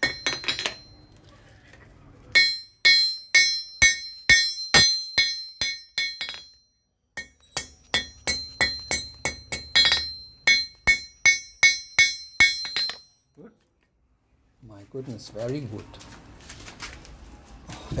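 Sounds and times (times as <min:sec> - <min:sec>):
hammer striking blade on anvil: 0:00.0 - 0:01.0, 0:02.3 - 0:06.6, 0:07.2 - 0:13.1.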